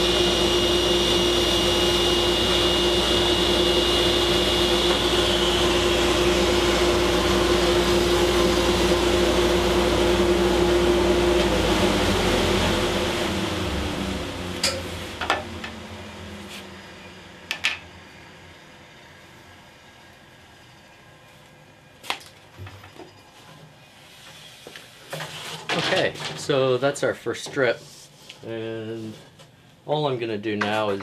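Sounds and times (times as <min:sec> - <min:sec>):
table saw running: 0:00.0 - 0:19.6
saw motor winding down: 0:00.0 - 0:20.2.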